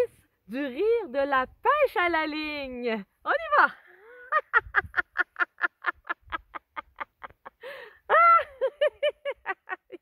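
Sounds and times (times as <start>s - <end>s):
woman laughing hard: 4.0s - 10.0s.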